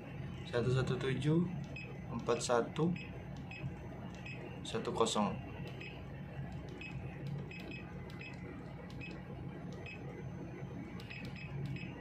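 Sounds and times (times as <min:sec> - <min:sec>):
low hum: 0:00.0 - 0:12.0
short beeps: 0:01.6 - 0:06.1, 0:09.8 - 0:12.0.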